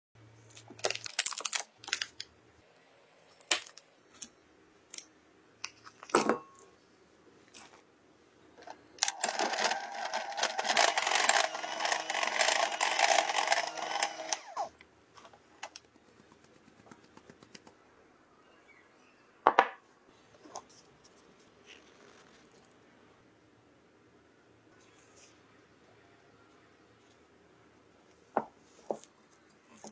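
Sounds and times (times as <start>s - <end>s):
butter packet crinkling: 0.5s - 2.3s
electric hand mixer whisking: 9.0s - 14.7s.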